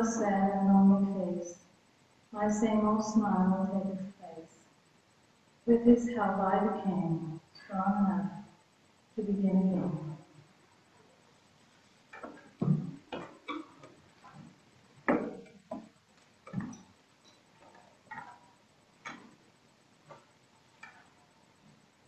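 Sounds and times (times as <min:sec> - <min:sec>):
footsteps on wooden pulpit: 0:12.1 - 0:16.9.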